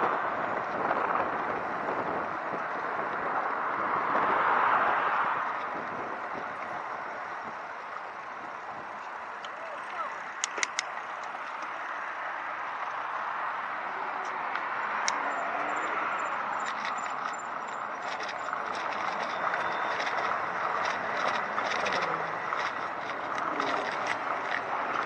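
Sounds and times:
tyre and wind rush: 0.0 - 25.0
light clicks: 10.4 - 11.7.

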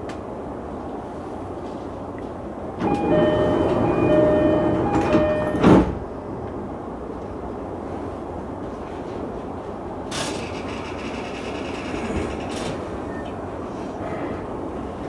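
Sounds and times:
train background hum: 0.0 - 15.0
two-note electronic door chime: 2.8 - 5.8
train doors closing thump: 2.8 - 6.1.

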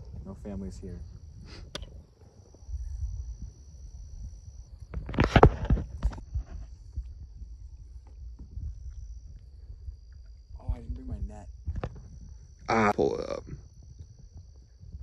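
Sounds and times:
night insects trilling: 0.0 - 15.0
low rumble: 6.0 - 15.0.

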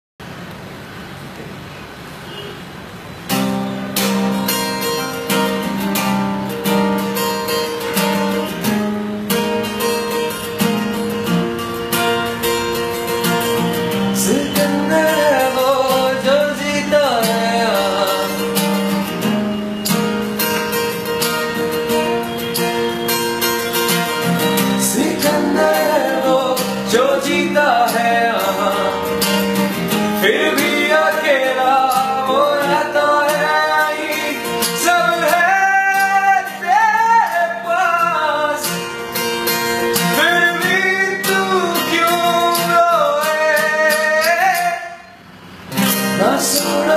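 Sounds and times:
acoustic guitars playing: 0.2 - 46.9
man singing: 14.2 - 18.6, 24.8 - 29.5, 30.2 - 38.8, 40.1 - 45.1, 46.2 - 46.9.

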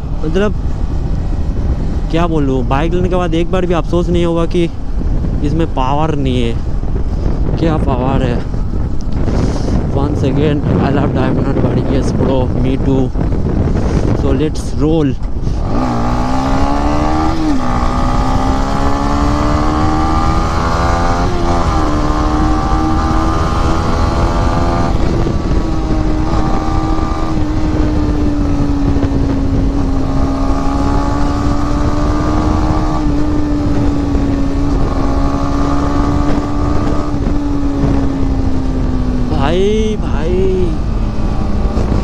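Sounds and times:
wind rush over microphone: 0.0 - 42.0
motorcycle engine accelerating: 15.3 - 42.0.

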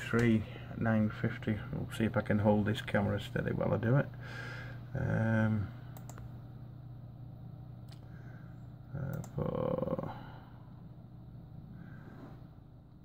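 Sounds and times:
low hum: 0.0 - 13.0
sharp clicks: 6.0 - 6.3.

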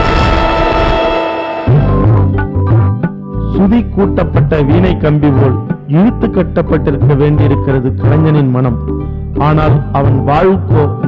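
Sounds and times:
drum strokes: 0.0 - 3.2.

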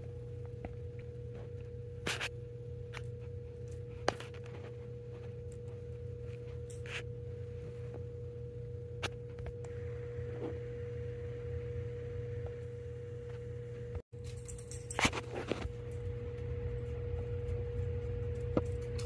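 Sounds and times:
steady hum with high tone: 0.0 - 19.0.

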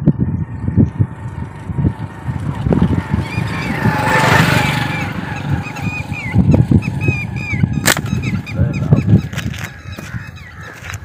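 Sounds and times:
birds calling: 0.0 - 11.0
wind buffeting on microphone: 0.0 - 11.0.

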